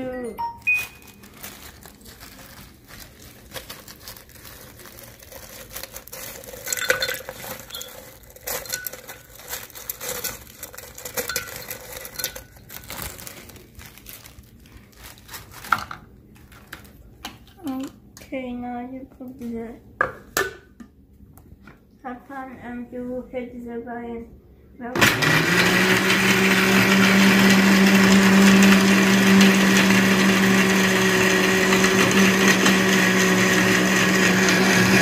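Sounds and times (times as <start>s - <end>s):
ice cubes clinking against glass: 6.3s - 12.9s.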